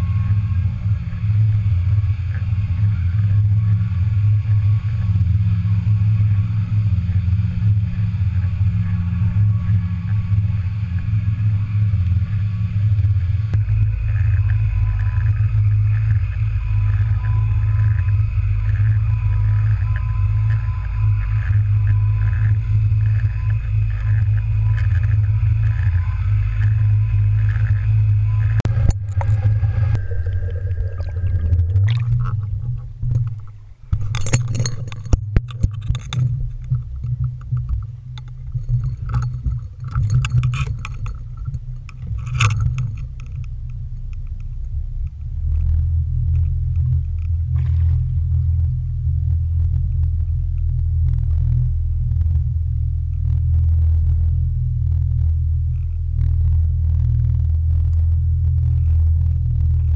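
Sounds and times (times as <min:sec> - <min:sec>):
boat engine drone: 0:00.0 - 0:59.9
faint pulsing whine: 0:00.0 - 0:59.9
water rushing past: 0:28.7 - 0:33.6.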